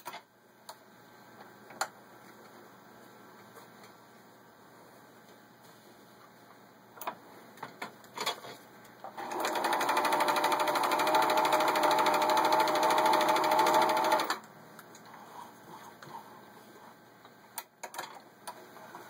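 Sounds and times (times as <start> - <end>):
sewing machine stitching: 9.1 - 14.4.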